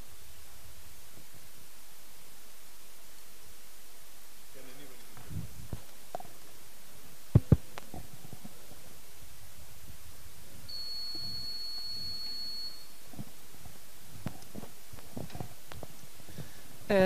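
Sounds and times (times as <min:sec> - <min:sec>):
microphone thumps: 0:05.2 - 0:06.4, 0:07.3 - 0:08.6, 0:13.1 - 0:16.6
thin high steady tone: 0:10.6 - 0:13.6.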